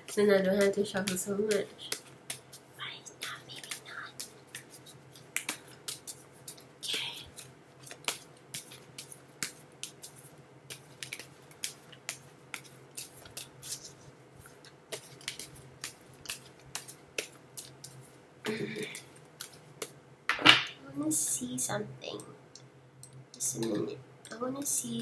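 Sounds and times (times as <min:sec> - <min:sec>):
cards being shuffled by hand: 0:00.0 - 0:18.2, 0:18.9 - 0:20.0.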